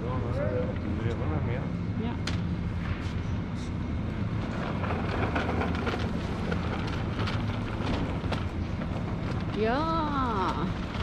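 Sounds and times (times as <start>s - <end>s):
low hum and rumble: 0.0s - 11.0s
shopping cart rolling on tiles: 4.3s - 11.0s.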